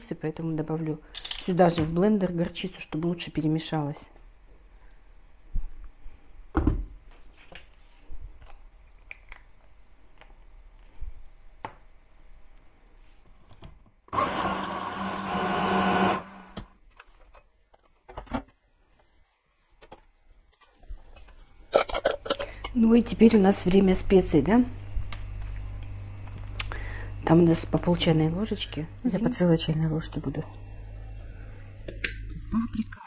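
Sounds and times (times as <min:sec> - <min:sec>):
hand blender humming: 0:14.2 - 0:16.6.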